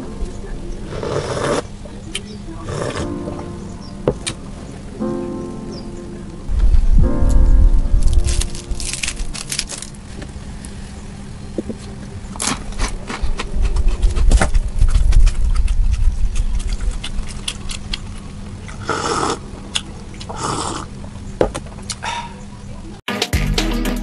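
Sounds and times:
biscuit snapping and crunching: 8.1s - 10.0s.

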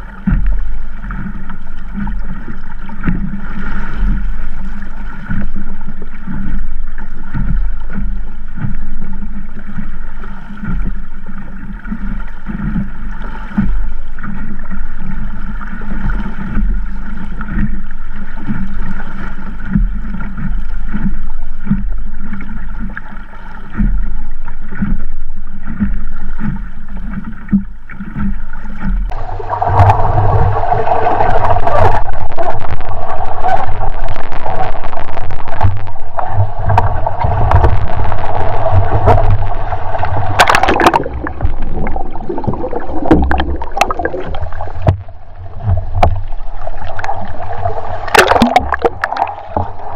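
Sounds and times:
water slapping against hull: 0.0s - 49.9s.

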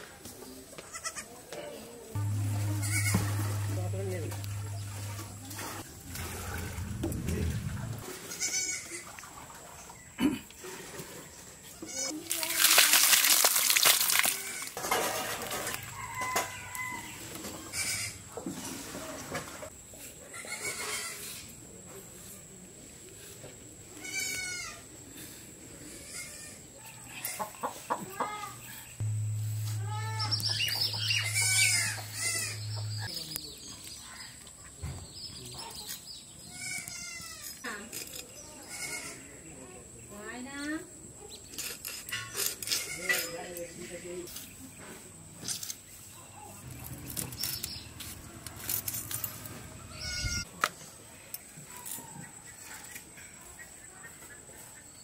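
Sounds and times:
steady low hum: 2.2s - 8.0s, 28.8s - 33.1s
chickens clucking: 27.2s - 33.1s.

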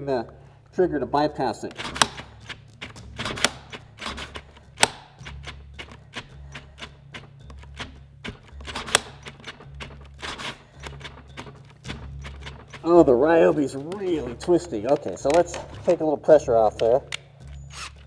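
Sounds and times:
drill trigger clicks: 1.7s - 16.0s, 16.7s - 18.0s
low drill motor hum: 17.4s - 18.0s.

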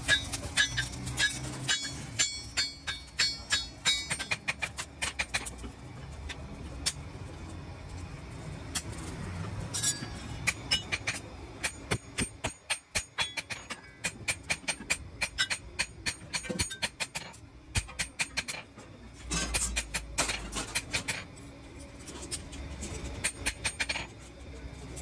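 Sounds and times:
hammer ringing on steel anvil: 0.1s - 4.4s.

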